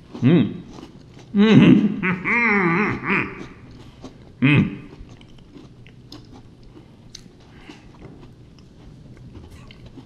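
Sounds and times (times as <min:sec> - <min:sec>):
cookies being chewed: 0:00.0 - 0:01.4, 0:02.5 - 0:10.0
muffled vocal sounds: 0:01.3 - 0:03.6, 0:04.4 - 0:05.0.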